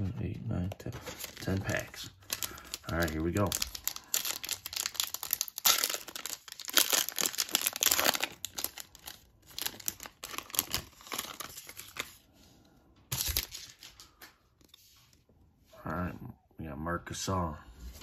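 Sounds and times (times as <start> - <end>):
foil wrapper tearing and crinkling: 1.1 - 12.1.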